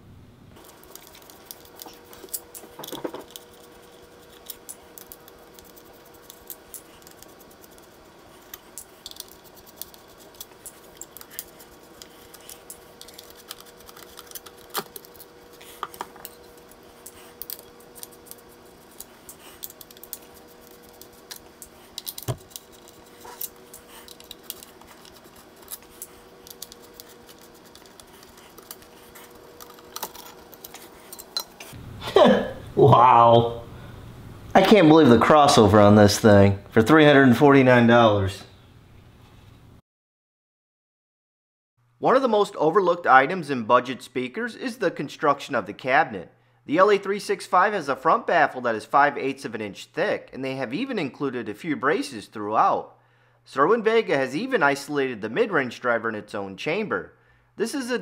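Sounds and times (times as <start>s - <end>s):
faint steady hum: 0.0s - 39.8s.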